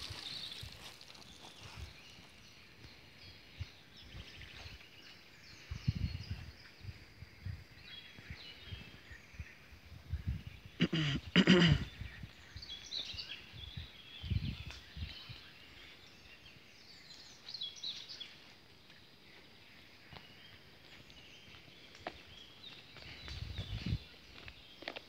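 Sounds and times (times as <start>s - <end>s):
footsteps on grass: 0.0s - 3.0s
birds chirping: 0.0s - 25.0s.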